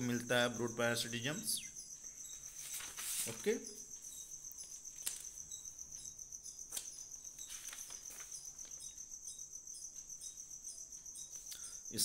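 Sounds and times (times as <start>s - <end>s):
insect trilling: 0.0s - 12.0s.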